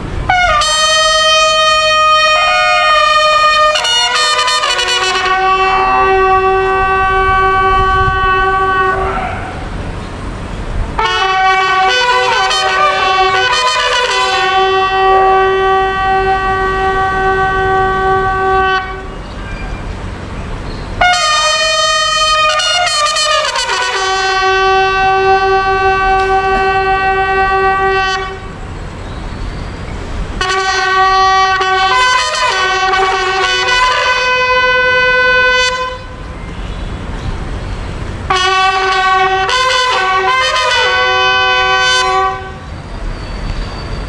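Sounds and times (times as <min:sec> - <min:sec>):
person shouting drawn-out command: 0:08.8 - 0:09.7.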